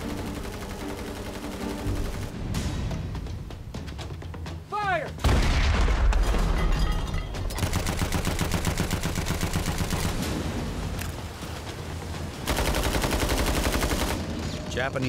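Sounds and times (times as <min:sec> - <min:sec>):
rapid machine-gun fire: 0:07.6 - 0:10.2, 0:12.5 - 0:14.3.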